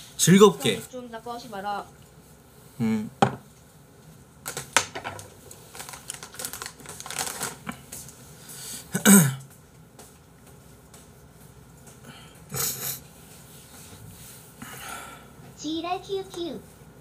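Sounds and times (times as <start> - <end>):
paper tissue crinkling: 5.2 - 8.2
person blowing nose: 12.5 - 13.0.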